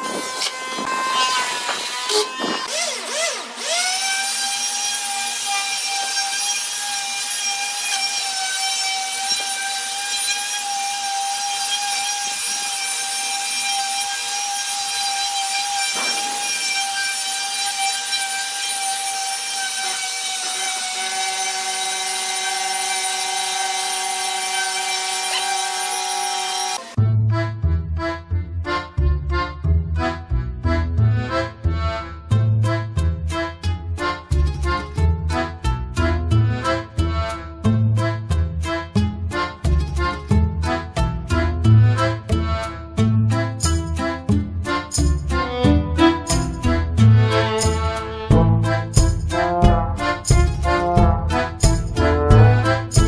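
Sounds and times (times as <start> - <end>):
electric sander on wood: 0.0 - 27.0
accordion music: 0.0 - 53.0.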